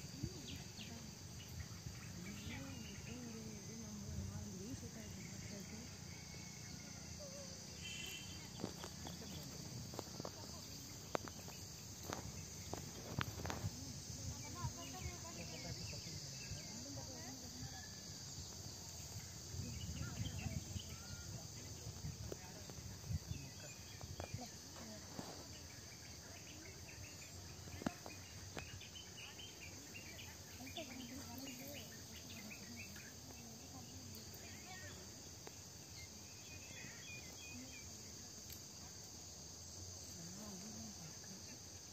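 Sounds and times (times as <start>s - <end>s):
faint distant voices: 0.0s - 41.9s
insects chirring: 0.0s - 41.9s
short repeated insect chirps: 5.9s - 17.0s.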